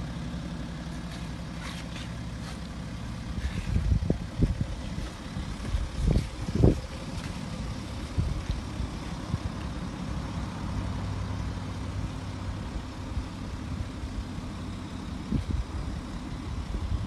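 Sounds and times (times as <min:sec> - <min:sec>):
diesel engine idling: 0:00.0 - 0:17.0
wind noise on microphone: 0:03.3 - 0:09.7, 0:15.2 - 0:17.0.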